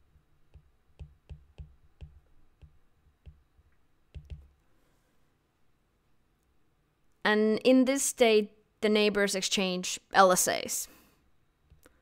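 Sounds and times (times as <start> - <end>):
stylus clicking on glass screen: 0.5 - 4.6.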